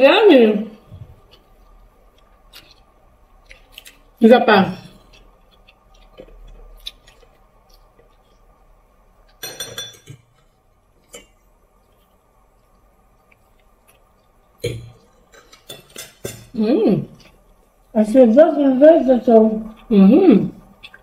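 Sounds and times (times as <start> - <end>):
metal fork clinking on dish: 9.4 - 10.3, 14.7 - 16.5.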